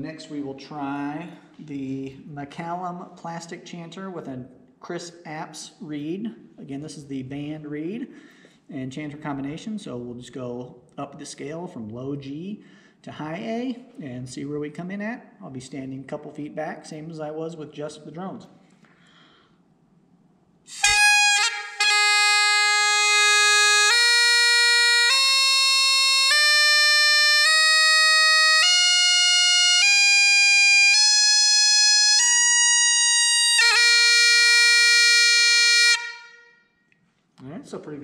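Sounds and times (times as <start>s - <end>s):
bagpipe chanter playing scale: 20.7s - 36.8s.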